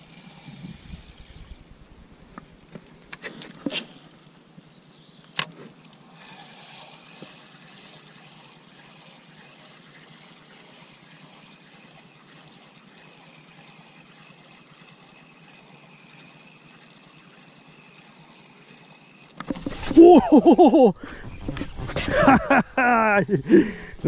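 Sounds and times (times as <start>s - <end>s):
fishing reel whirring: 0.0s - 1.8s, 6.0s - 22.3s
fishing reel clicks: 6.2s - 19.5s.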